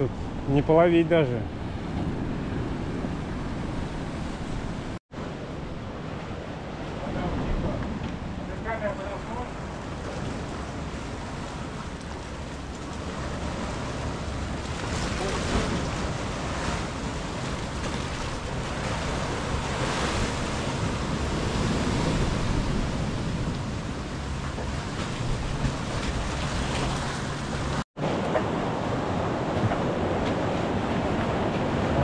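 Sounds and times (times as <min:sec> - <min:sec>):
surf breaking on rocky shore: 0:06.4 - 0:32.0.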